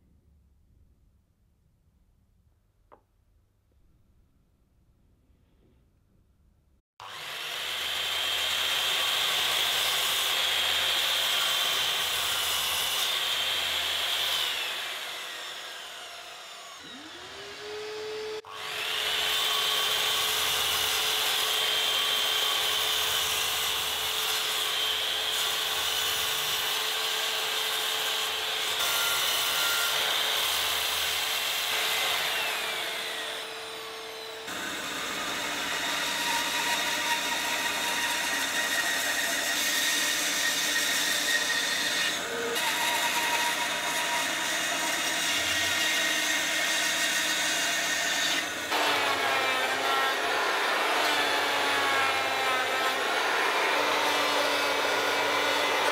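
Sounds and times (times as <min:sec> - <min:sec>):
mitre saw cutting wood: 0:07.0 - 0:55.9.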